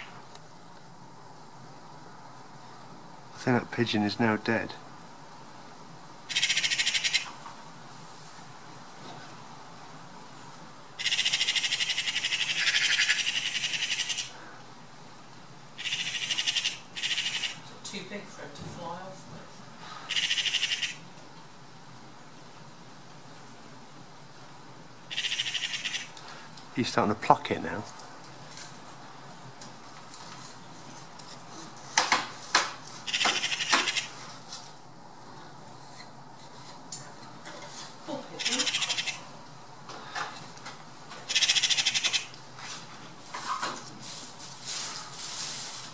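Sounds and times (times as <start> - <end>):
magpies chattering: 6.3 - 7.4, 11.0 - 14.4, 15.8 - 17.7, 20.1 - 21.1, 25.1 - 26.2, 33.1 - 34.2, 38.4 - 39.3, 41.3 - 42.3.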